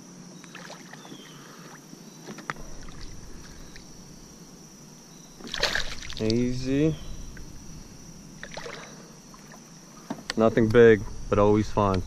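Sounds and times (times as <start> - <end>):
water lapping around kayak: 2.5 - 10.2
fish splashing at surface: 2.6 - 4.5, 5.1 - 9.7.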